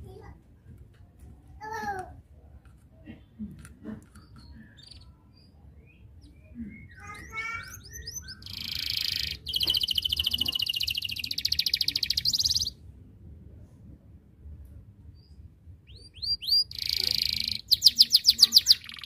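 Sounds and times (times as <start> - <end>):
canary singing: 4.1 - 12.8, 15.8 - 19.0.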